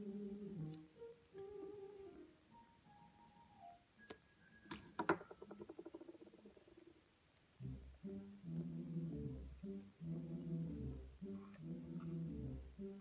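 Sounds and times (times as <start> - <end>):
person humming a tune: 0.0 - 2.3.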